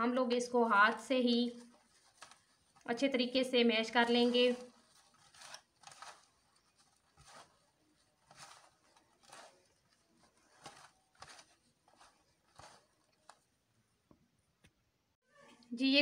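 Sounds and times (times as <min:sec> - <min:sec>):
bread crumbling by hand: 0:01.4 - 0:13.7.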